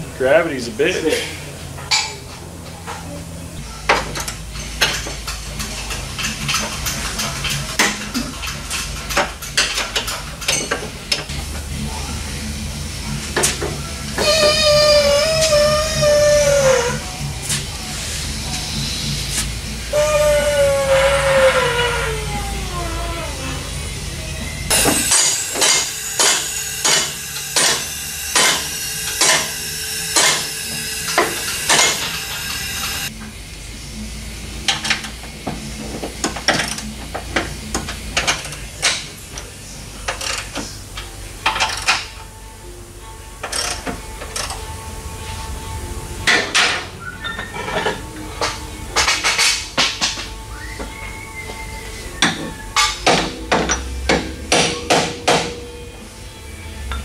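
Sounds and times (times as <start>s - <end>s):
steady low hum: 0.0s - 20.3s, 21.5s - 57.0s
metal tools clanking on steel: 1.0s - 3.0s, 3.8s - 11.4s, 46.3s - 50.4s, 52.2s - 55.8s
metal clanks with ring: 4.1s - 11.3s, 24.7s - 32.1s, 52.8s - 55.9s.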